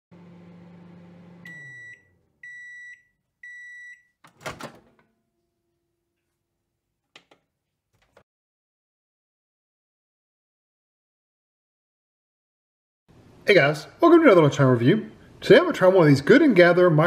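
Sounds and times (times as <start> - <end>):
microwave humming: 0.1 - 6.6
microwave beeps: 1.0 - 4.2
microwave door clunking open: 4.3 - 5.0.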